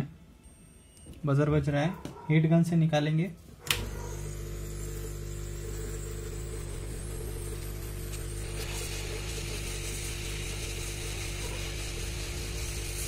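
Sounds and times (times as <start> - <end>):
hot air gun blowing: 3.8 - 13.0.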